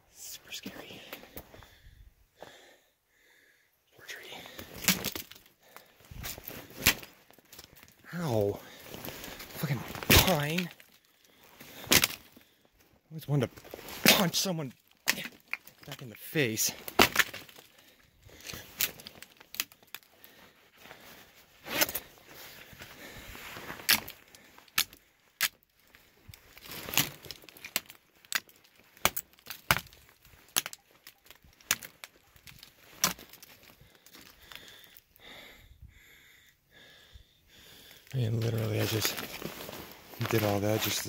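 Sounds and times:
footsteps on rock and gravel: 38.2 - 41.0.

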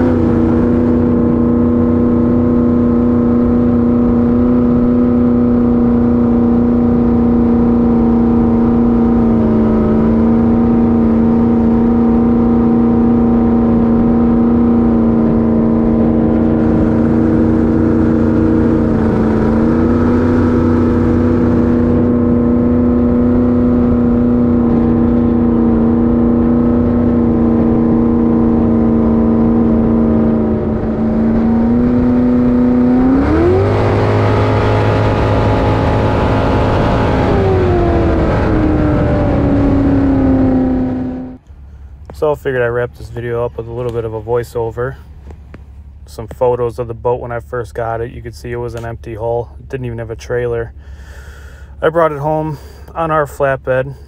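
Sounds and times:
boat engine running and revving: 0.0 - 54.0.

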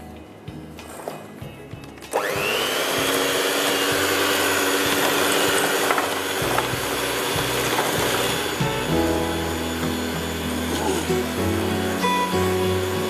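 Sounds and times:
electric mixer motor whining: 2.1 - 13.0.

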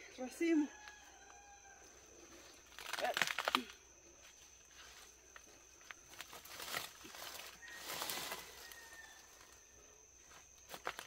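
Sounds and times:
faint high insect buzz: 0.0 - 11.0
dry leaves rustling and crunching: 6.1 - 9.1
footsteps in leaf litter: 6.2 - 9.1.

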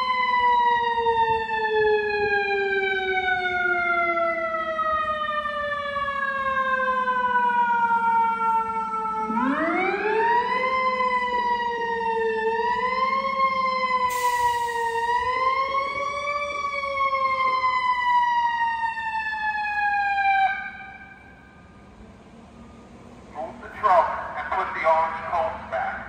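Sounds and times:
fire engine siren wailing: 0.0 - 26.0
brief hiss: 14.1 - 14.9.

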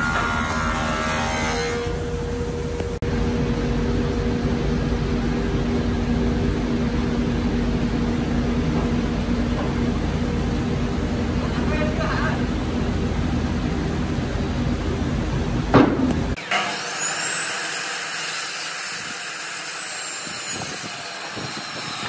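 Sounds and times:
workshop machinery humming: 0.0 - 22.0.

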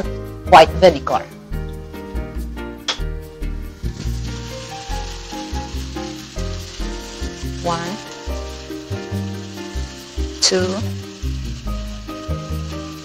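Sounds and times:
food sizzling in a wok: 3.3 - 13.0.

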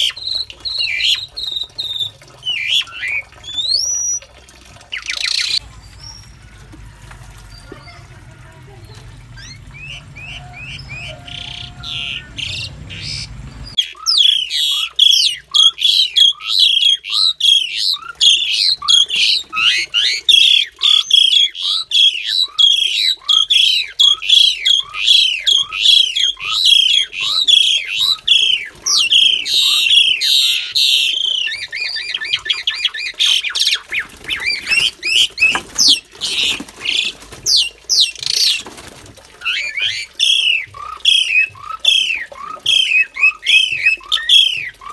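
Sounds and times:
starlings squawking harshly: 9.3 - 38.6.

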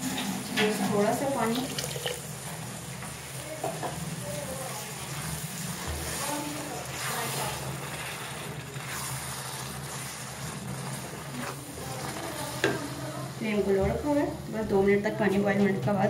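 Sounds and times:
spatula scraping and sloshing in pot: 0.0 - 13.4.

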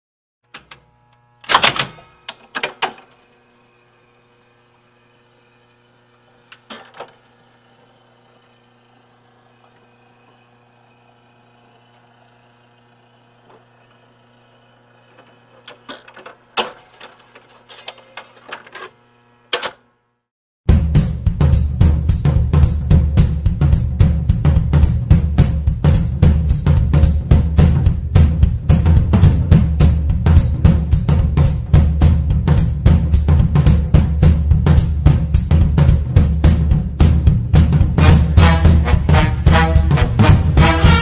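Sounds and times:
drum kit: 20.7 - 41.0.

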